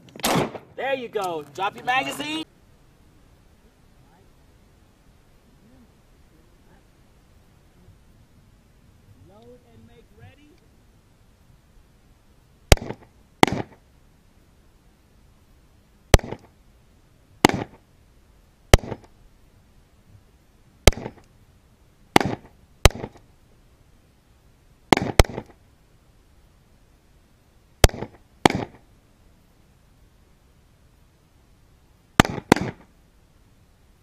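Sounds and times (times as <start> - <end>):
pistol shots with echo: 0.2 - 0.7, 12.7 - 13.8, 16.1 - 16.5, 17.4 - 17.8, 18.7 - 19.1, 20.9 - 21.2, 22.2 - 23.2, 24.9 - 25.5, 27.8 - 28.8, 32.2 - 32.9.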